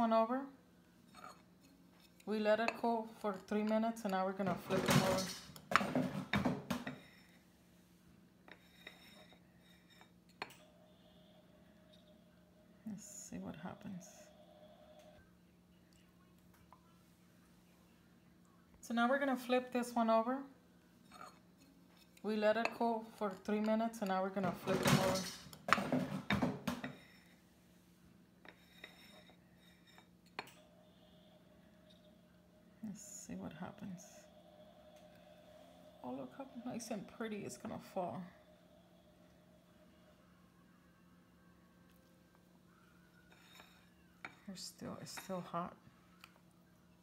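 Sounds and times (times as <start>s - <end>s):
faint steady hum: 0.0s - 47.0s.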